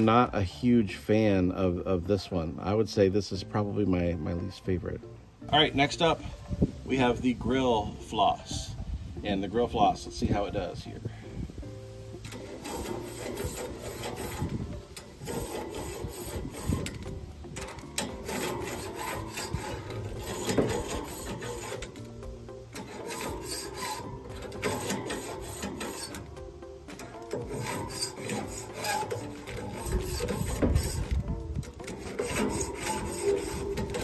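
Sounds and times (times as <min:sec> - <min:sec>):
metal hook scraping grill grate: 0:00.0 - 0:04.2, 0:11.8 - 0:34.0.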